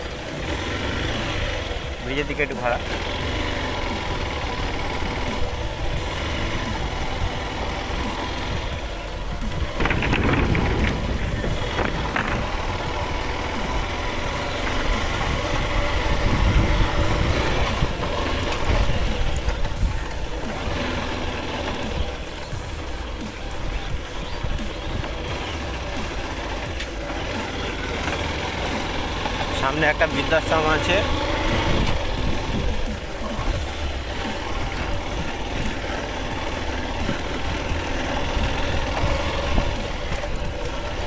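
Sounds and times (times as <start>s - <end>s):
motorcycle engine running: 0.0s - 41.0s
wind on microphone: 8.6s - 13.7s, 15.0s - 20.3s.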